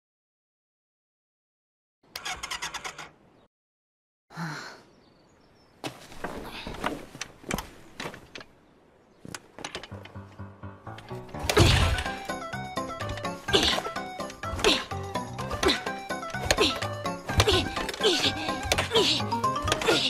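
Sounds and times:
motorcycle starter cranking: 2.1s - 3.2s.

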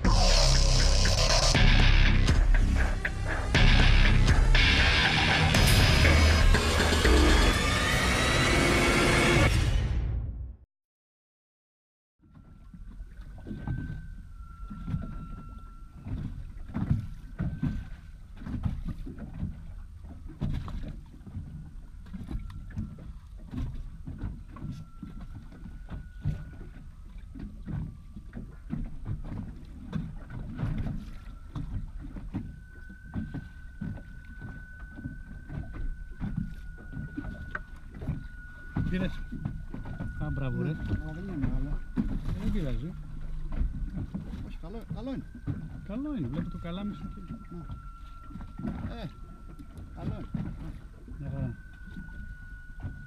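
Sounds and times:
small waves slapping a hull: 12.2s - 53.0s
faint high whine: 31.0s - 53.0s.

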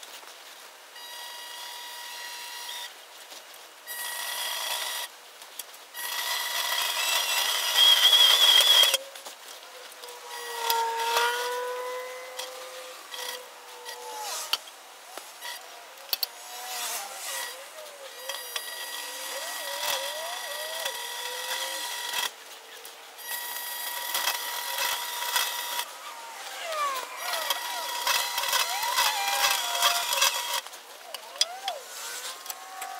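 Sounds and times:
steel tube squealing in rollers: 6.9s - 9.0s, 16.4s - 22.3s, 23.2s - 30.6s.

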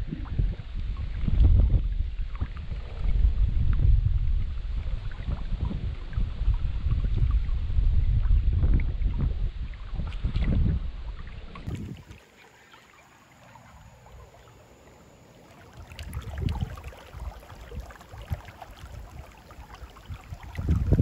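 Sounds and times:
wind buffeting microphone: 0.0s - 12.2s, 15.8s - 21.0s
creek water trickling: 4.4s - 21.0s.

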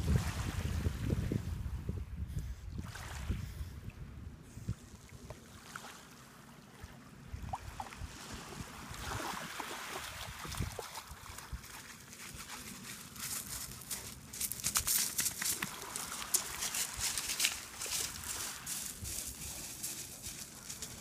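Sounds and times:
wind rumbling on microphone: 0.0s - 5.3s, 7.3s - 12.5s, 14.4s - 21.0s
water splashing and sloshing: 2.7s - 21.0s
paws crunching on pebbles: 11.5s - 21.0s.

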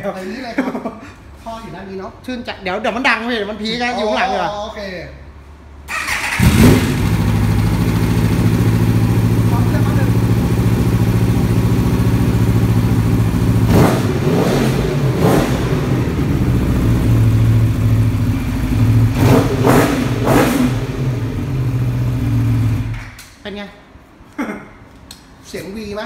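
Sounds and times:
motorcycle engine idling and revving: 5.9s - 23.1s.

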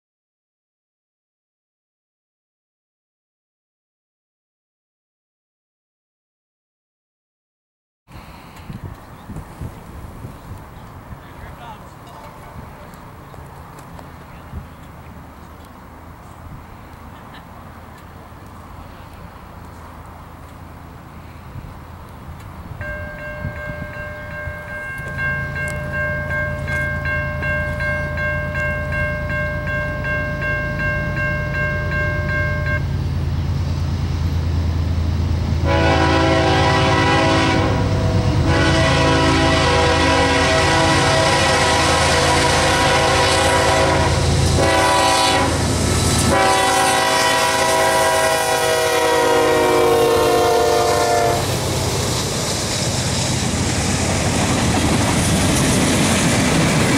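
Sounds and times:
freight cars rolling: 8.1s - 35.6s, 51.0s - 56.9s
diesel engine rumble: 8.1s - 44.9s, 51.2s - 56.9s
locomotive air horn blasts: 35.6s - 51.6s.

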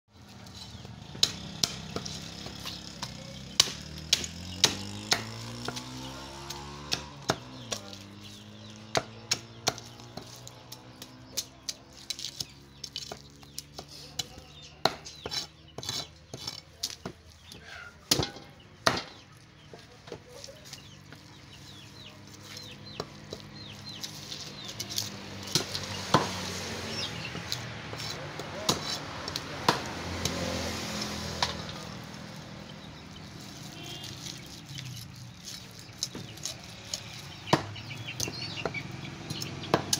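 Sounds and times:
knife chopping on wooden block: 1.1s - 8.2s, 8.8s - 19.2s, 22.9s - 26.5s, 27.3s - 30.5s, 36.0s - 39.9s.

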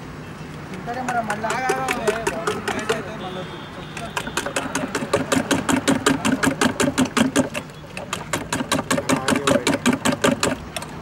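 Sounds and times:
spoon beating eggs in steel bowl: 1.0s - 3.0s.

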